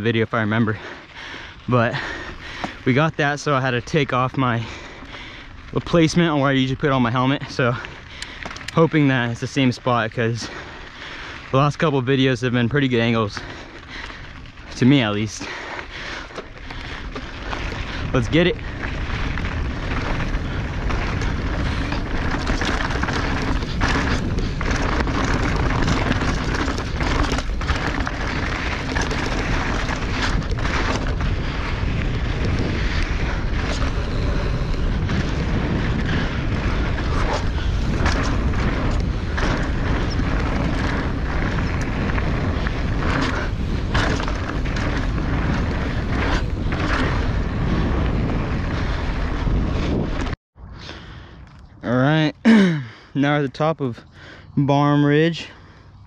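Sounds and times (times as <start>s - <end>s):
wind buffeting microphone: 0.0s - 56.0s
bike knocks and rattles: 16.3s - 50.3s.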